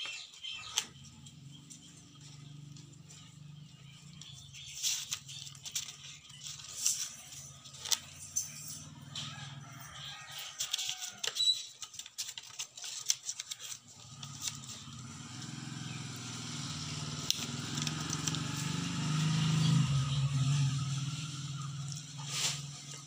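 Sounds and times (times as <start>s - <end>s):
paper pages handled: 4.7s - 8.1s, 10.5s - 14.8s, 17.2s - 18.5s.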